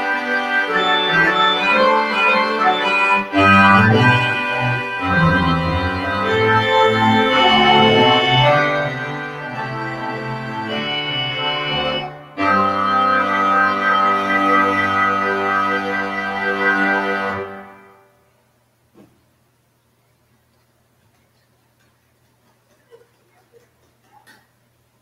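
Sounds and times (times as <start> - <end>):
church organ chords: 0.0 - 18.1.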